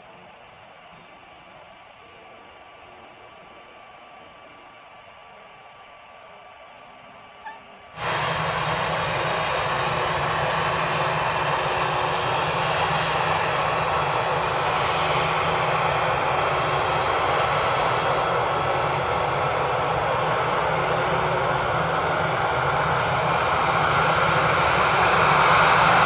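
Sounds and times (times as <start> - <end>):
jet engines running loud: 8.0 - 26.0.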